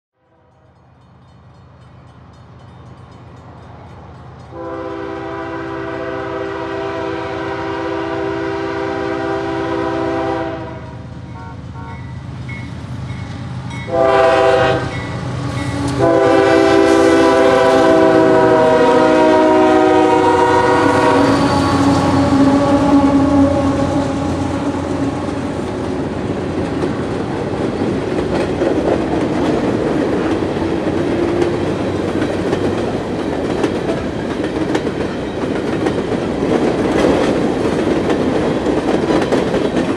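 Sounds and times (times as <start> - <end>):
train air horn blasts: 0.2 - 0.7, 4.5 - 12.2, 13.9 - 25.8
train wheels clattering on rails: 0.7 - 7.0, 10.7 - 39.9
locomotive rumble: 0.8 - 39.9.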